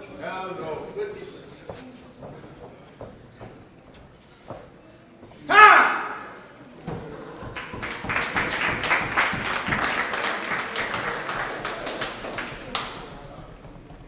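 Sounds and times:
crowd clapping: 0:07.4 - 0:13.3.

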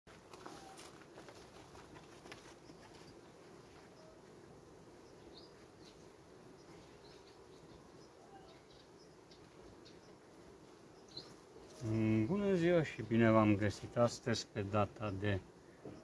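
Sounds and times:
honeybees buzzing: 0:00.1 - 0:16.0.

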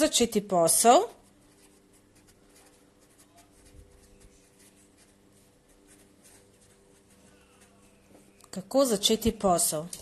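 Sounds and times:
faint steady hum: 0:00.0 - 0:10.0
felt-tip pen scratching paper: 0:00.7 - 0:08.2.

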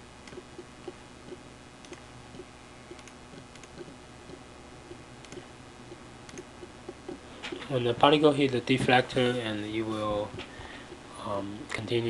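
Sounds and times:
low electrical hum: 0:00.0 - 0:12.0
computer mouse clicks: 0:00.2 - 0:05.5, 0:06.2 - 0:07.6.

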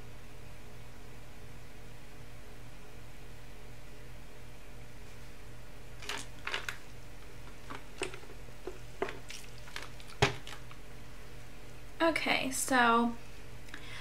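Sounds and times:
makeup brushes clicking and tapping: 0:06.0 - 0:06.8, 0:07.4 - 0:10.8.

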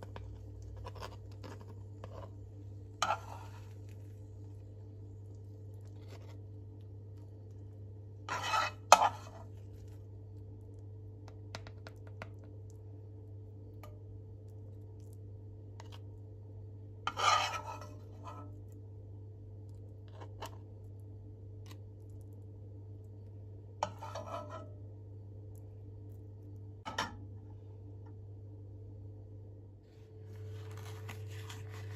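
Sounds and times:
metal spoon scraping frying pan: 0:03.0 - 0:03.8, 0:08.3 - 0:09.5, 0:17.1 - 0:18.6, 0:23.8 - 0:24.7.

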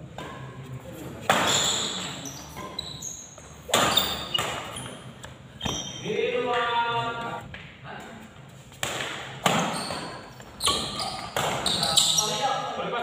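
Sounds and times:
shoes squeaking on court: 0:00.2 - 0:06.1, 0:09.5 - 0:12.5
badminton racket hitting shuttlecock: 0:03.7 - 0:04.8.

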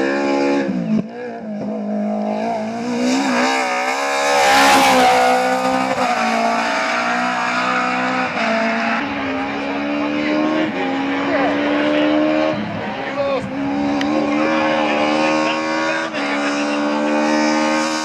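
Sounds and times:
rally car engine at high revs: 0:00.0 - 0:18.0.

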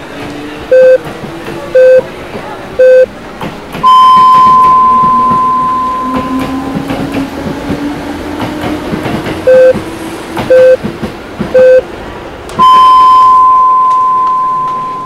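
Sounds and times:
short low beeps: 0:00.7 - 0:01.0, 0:01.8 - 0:02.0, 0:02.8 - 0:03.1, 0:03.8 - 0:06.5, 0:09.5 - 0:09.8, 0:10.5 - 0:10.8, 0:11.6 - 0:11.8, 0:12.6 - 0:15.0
long high beep: 0:03.8 - 0:06.5, 0:09.5 - 0:09.8, 0:10.5 - 0:10.8, 0:11.6 - 0:11.8, 0:12.6 - 0:15.0.

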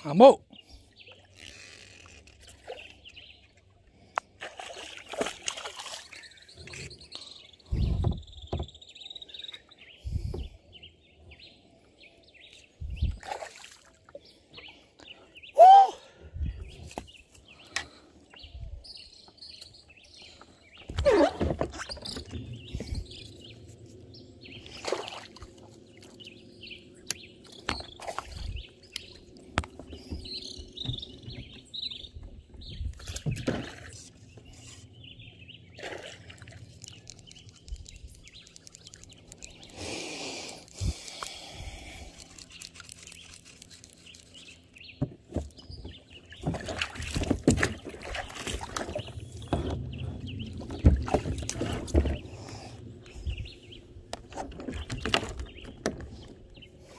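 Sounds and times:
birds calling: 0:00.0 - 0:56.9
fishing rod and reel handling: 0:01.3 - 0:02.7, 0:36.3 - 0:44.8.

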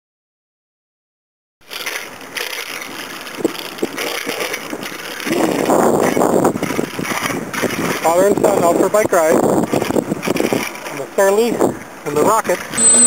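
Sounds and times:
bicycle tyres rolling on pavement: 0:01.6 - 0:12.8
wind rushing over microphone: 0:03.4 - 0:13.0.

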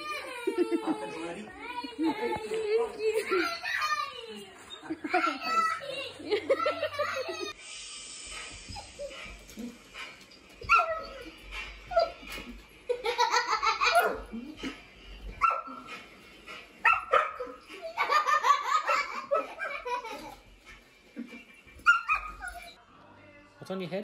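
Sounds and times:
child laughing: 0:00.0 - 0:07.6, 0:17.6 - 0:20.4
dog barking: 0:15.4 - 0:15.9, 0:16.8 - 0:17.6.

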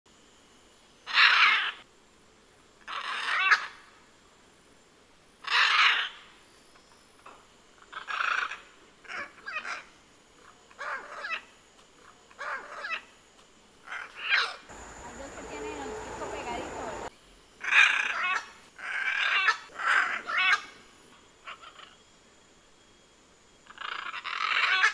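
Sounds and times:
macaws squawking harshly: 0:01.0 - 0:01.8, 0:02.8 - 0:03.9, 0:05.4 - 0:06.3, 0:07.8 - 0:13.1, 0:13.8 - 0:20.8, 0:21.4 - 0:22.0, 0:23.6 - 0:24.9.

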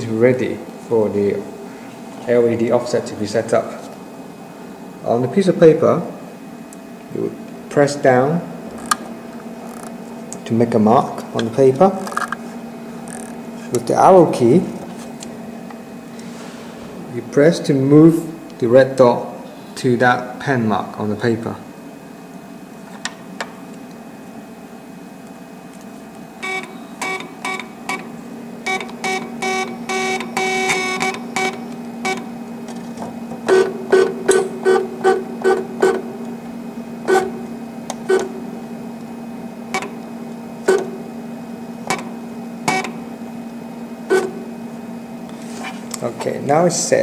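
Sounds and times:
machine low hum: 0:00.0 - 0:47.0
plotter motors buzzing: 0:07.2 - 0:17.5, 0:25.6 - 0:46.6.

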